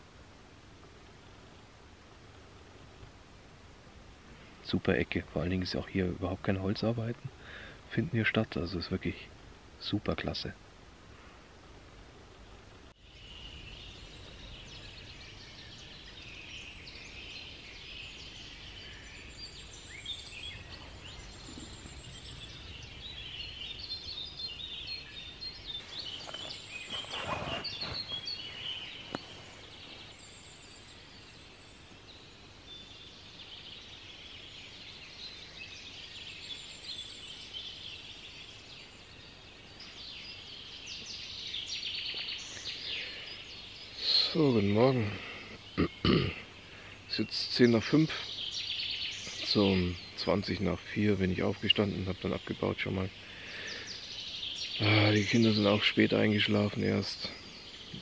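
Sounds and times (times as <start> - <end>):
songbirds chirping: 0.0 - 58.0.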